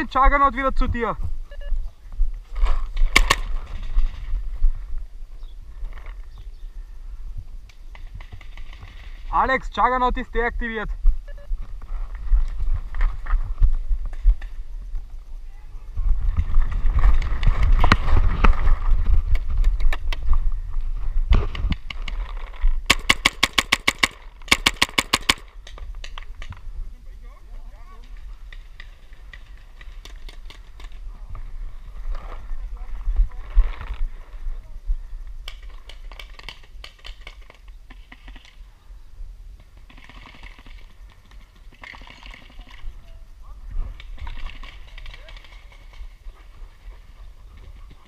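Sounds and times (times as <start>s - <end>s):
wind rumble on microphone: 0.4s - 9.3s, 10.9s - 23.0s, 25.8s - 36.8s, 42.7s - 48.0s
wind buffeting microphone: 10.9s - 23.0s
running footsteps through grass: 11.0s - 14.8s
paintball markers firing: 22.9s - 26.5s.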